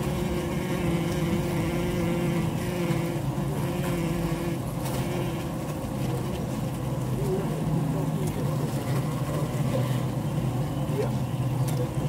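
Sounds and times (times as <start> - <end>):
bees buzzing in hive: 0.0 - 7.0.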